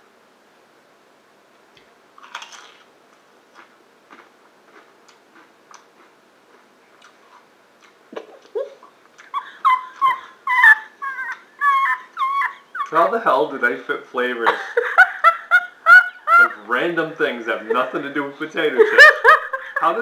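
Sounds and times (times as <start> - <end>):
faint crunching: 1.8 - 8.5
high-pitched squeaky cries: 9.4 - 13.0.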